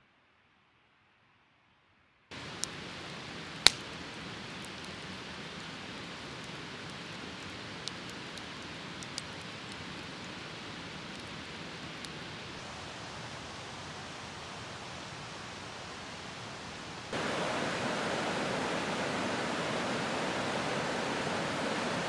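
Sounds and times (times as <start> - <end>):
fire popping and cracking: 2.3 - 12.6
campfire hissing: 2.3 - 22.0.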